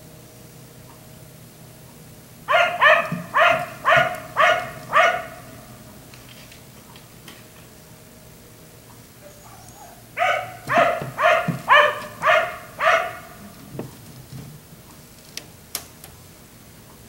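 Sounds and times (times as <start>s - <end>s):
dog barking: 2.5s - 5.7s, 9.2s - 13.6s.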